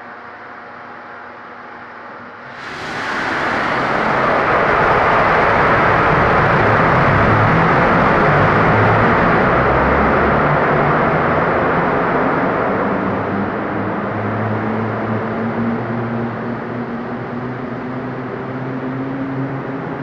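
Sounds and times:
low hum: 2.4 - 9.3
water turbine rushing din: 2.5 - 12.7.

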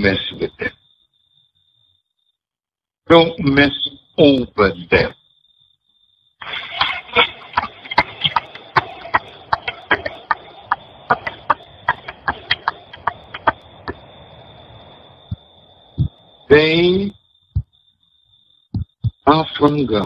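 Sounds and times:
faint high-pitched whine: 0.0 - 2.4, 3.1 - 20.0
audience applauding: 6.4 - 14.0.

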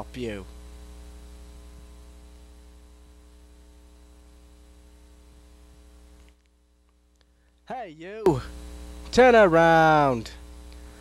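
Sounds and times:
electrical mains hum: 0.0 - 11.0
tape hiss: 0.0 - 11.0.

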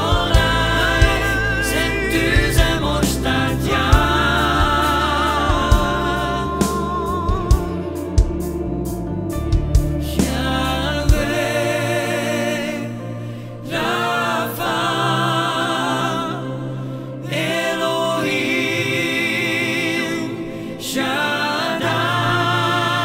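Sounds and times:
men singing in harmony: 0.0 - 8.8, 10.0 - 23.0
drums and bass: 0.0 - 11.5.

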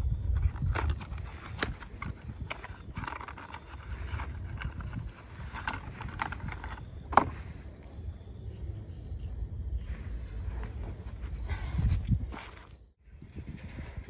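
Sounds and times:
wind rumble on microphone: 0.0 - 14.0
cardboard and plastic rustling: 0.3 - 7.6, 10.3 - 12.8.

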